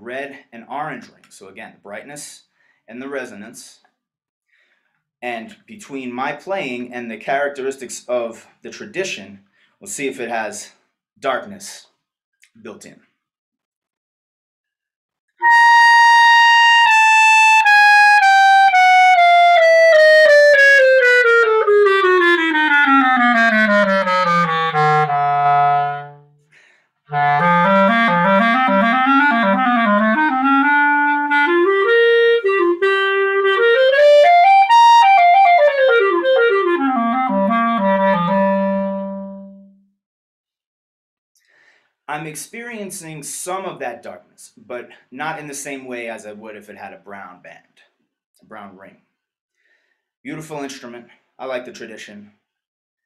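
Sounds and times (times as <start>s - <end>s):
solo clarinet: 15.4s - 26.4s, 27.1s - 39.9s.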